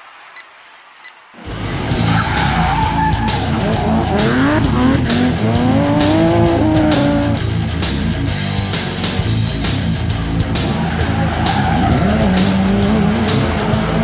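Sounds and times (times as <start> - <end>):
tyres screeching and skidding: 1.4 - 7.4, 10.4 - 14.0
loud music with regular beat: 1.9 - 14.0
car engine revving hard: 2.3 - 7.5, 10.3 - 14.0.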